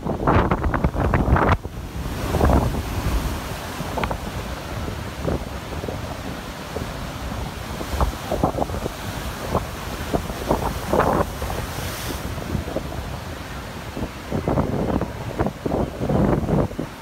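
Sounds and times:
ocean surf breaking: 0:00.0 - 0:17.0
wind buffeting microphone: 0:00.0 - 0:17.0.

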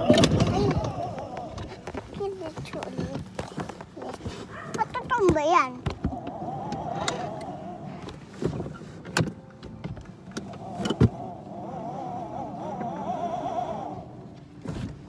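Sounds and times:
sharp knocks and bumps: 0:00.0 - 0:06.9
toy car electric motor whining: 0:10.4 - 0:14.8.

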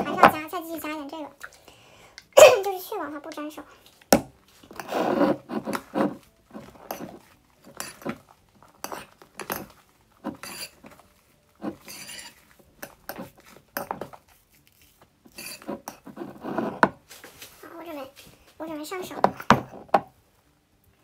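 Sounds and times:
spoon scraping ceramic bowl: 0:04.6 - 0:17.0.

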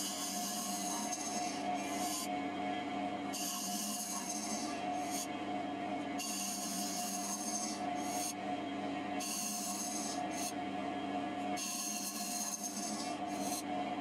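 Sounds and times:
cutter scraping spinning wood: 0:00.0 - 0:02.3, 0:03.4 - 0:05.3, 0:06.2 - 0:08.4, 0:09.2 - 0:10.5, 0:11.6 - 0:13.7
wood lathe motor hum: 0:00.0 - 0:02.3, 0:03.4 - 0:05.3, 0:06.2 - 0:08.4, 0:09.2 - 0:10.5, 0:11.6 - 0:13.7.

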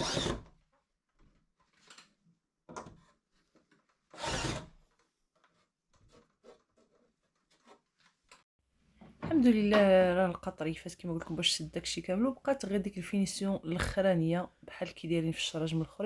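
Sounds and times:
cordless drill driving screws: 0:00.0 - 0:00.4, 0:04.2 - 0:04.7.

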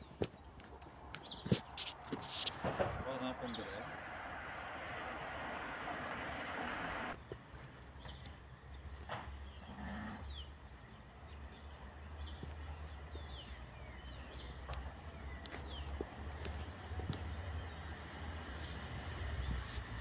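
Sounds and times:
birds chirping: 0:00.0 - 0:20.0
loud hiss: 0:02.3 - 0:07.2.

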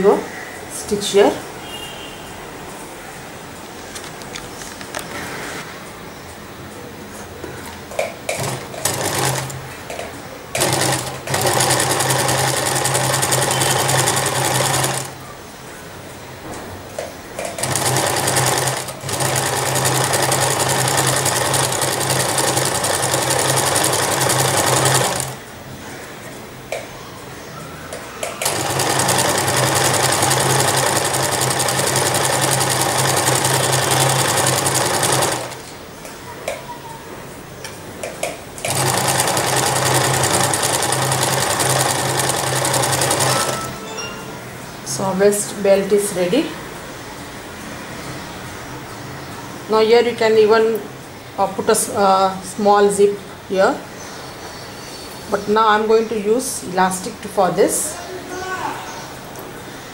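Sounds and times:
electric sewing machine stitching: 0:08.3 - 0:09.6, 0:10.6 - 0:15.2, 0:17.5 - 0:25.4, 0:28.4 - 0:35.6, 0:38.6 - 0:43.7.

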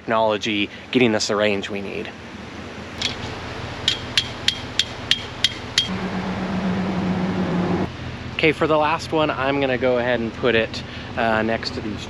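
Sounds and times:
steady low hum: 0:00.0 - 0:12.0
metal stake struck with ringing: 0:03.9 - 0:05.9.

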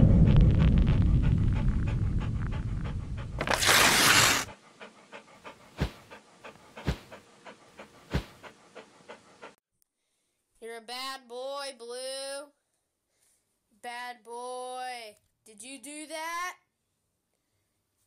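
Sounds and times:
low rumble: 0:00.0 - 0:03.4
dog panting sound effect: 0:00.0 - 0:09.6.

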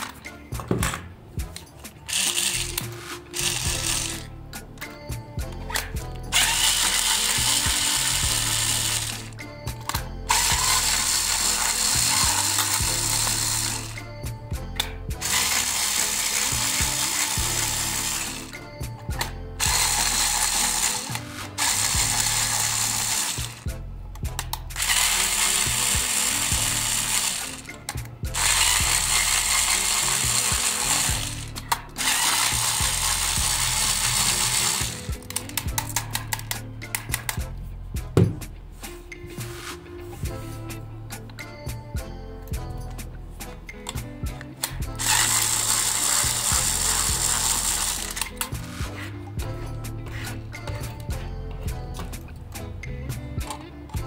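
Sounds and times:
cordless screwdriver running: 0:02.1 - 0:04.3, 0:06.3 - 0:14.1, 0:15.2 - 0:18.5, 0:19.2 - 0:23.7, 0:24.8 - 0:36.0, 0:44.9 - 0:48.8.

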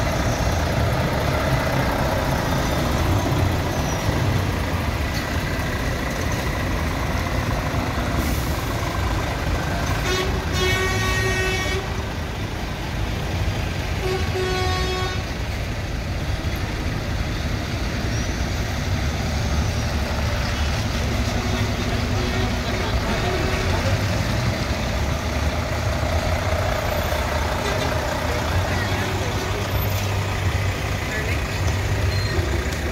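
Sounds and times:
lorry diesel engines running: 0:00.0 - 0:32.9
truck horn blasts: 0:09.8 - 0:12.0, 0:14.0 - 0:15.3.

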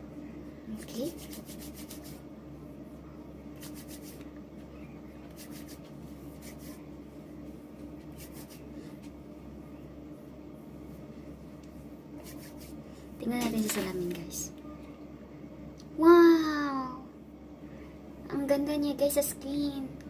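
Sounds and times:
fingertips patting skin: 0:03.6 - 0:04.3, 0:05.3 - 0:06.8.

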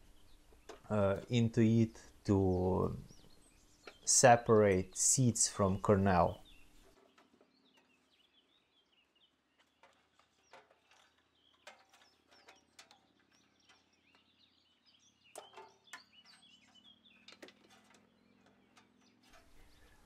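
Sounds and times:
birds chirping: 0:00.0 - 0:20.0
light metal knocks and clicks: 0:09.6 - 0:20.0.

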